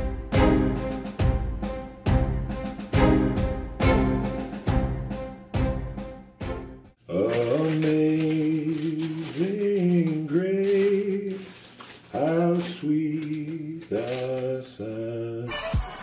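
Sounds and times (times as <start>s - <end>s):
man singing long notes: 7.1s - 15.6s.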